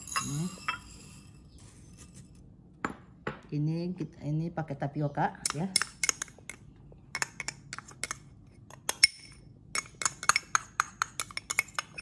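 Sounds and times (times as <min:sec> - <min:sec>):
metal spoon clinking on glass: 0:00.0 - 0:01.4, 0:08.9 - 0:12.0.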